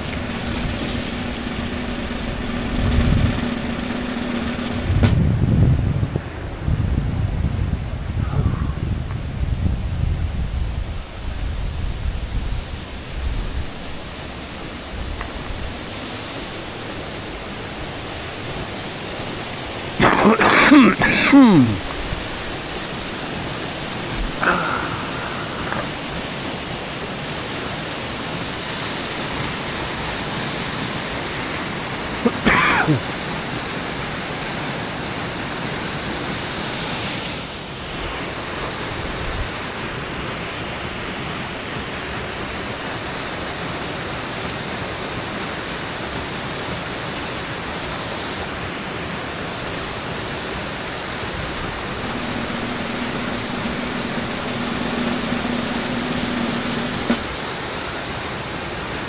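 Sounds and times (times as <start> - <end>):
low steady hum: 0.0 - 5.4, 51.6 - 57.4
steady rushing noise: 0.0 - 6.6, 51.4 - 57.6.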